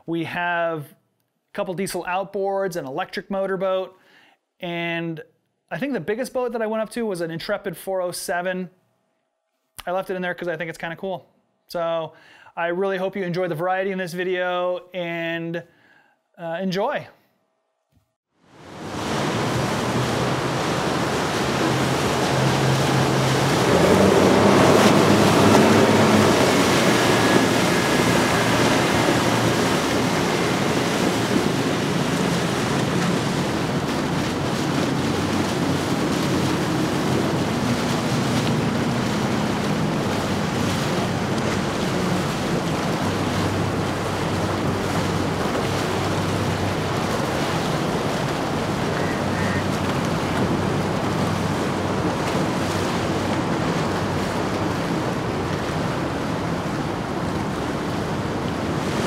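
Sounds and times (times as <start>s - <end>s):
boat engine drone: 18.5s - 59.0s
rushing water wash: 18.5s - 59.0s.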